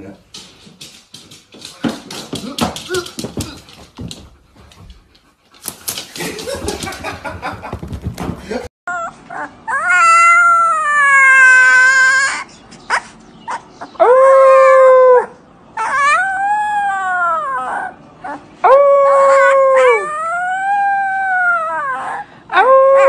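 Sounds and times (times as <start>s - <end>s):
puppy howling: 8.9s - 12.5s, 13.5s - 23.0s.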